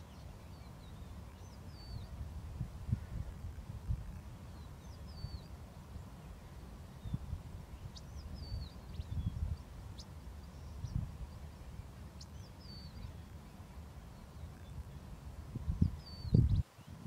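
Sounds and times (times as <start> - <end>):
small birds warbling whistles: 4.5 - 5.5, 7.0 - 13.4, 15.8 - 17.0.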